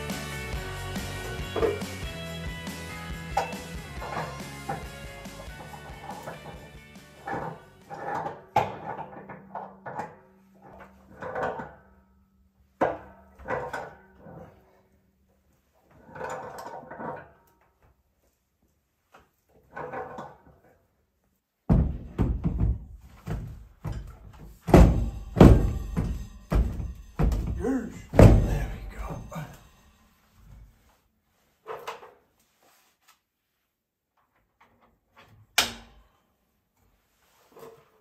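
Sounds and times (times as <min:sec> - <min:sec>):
background music: 0:00.0 - 0:08.4, 0:24.8 - 0:30.2
metal manifold knocks and clunks: 0:01.5 - 0:01.9, 0:03.4 - 0:11.9, 0:12.8 - 0:14.5, 0:21.7 - 0:29.8.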